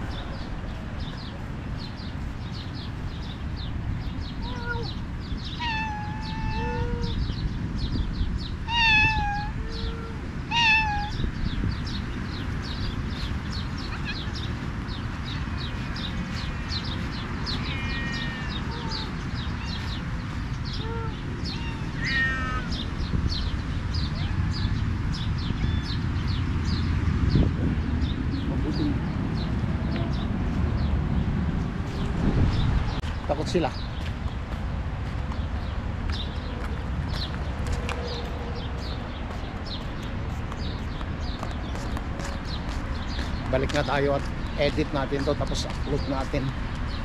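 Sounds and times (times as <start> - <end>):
cats meowing: 4.4 - 7.3, 8.6 - 11.2, 13.8 - 14.5, 16.5 - 20.0, 20.7 - 22.9, 24.0 - 24.8, 25.4 - 26.0.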